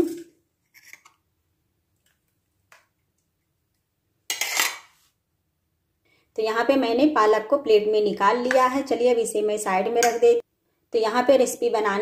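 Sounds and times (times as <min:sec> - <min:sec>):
spoon scraping steel jar: 0:00.0 - 0:01.2, 0:04.3 - 0:05.0.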